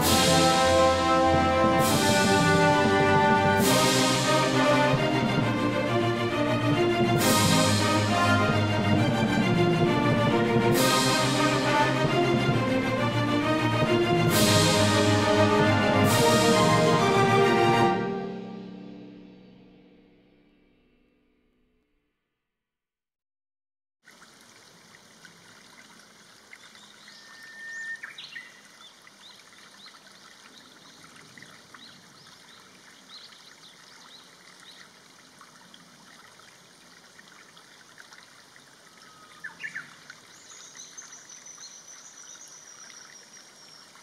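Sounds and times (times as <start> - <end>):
stream trickling: 24.0 - 44.0
birds chirping: 26.6 - 35.0, 38.6 - 44.0.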